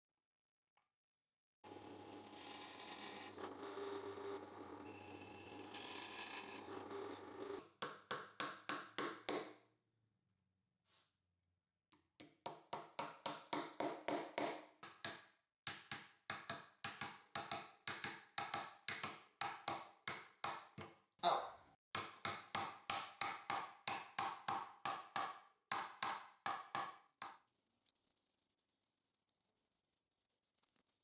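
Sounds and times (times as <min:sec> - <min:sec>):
hammer tapping nails into wood: 0:07.8 - 0:09.6, 0:12.2 - 0:21.0, 0:22.0 - 0:27.4.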